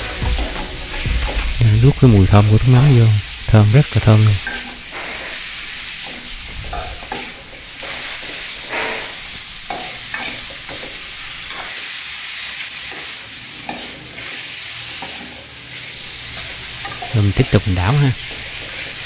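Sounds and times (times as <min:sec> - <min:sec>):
chicken sizzling in a wok: 0:00.0 - 0:19.0
metal spatula scraping wok: 0:04.4 - 0:11.8.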